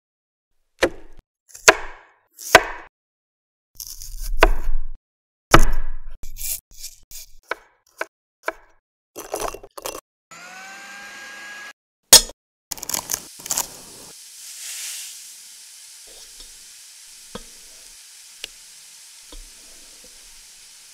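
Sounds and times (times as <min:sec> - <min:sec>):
electric food chopper humming: 0:10.3 - 0:11.8, 0:12.7 - 0:20.9
knife crunching through pineapple: 0:12.7 - 0:13.8.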